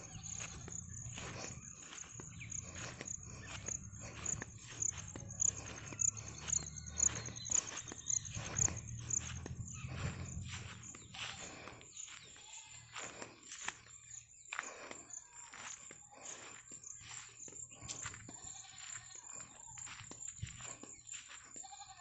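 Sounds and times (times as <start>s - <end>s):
insect chirping trill: 0.0s - 11.1s
footsteps through grass: 0.0s - 22.0s.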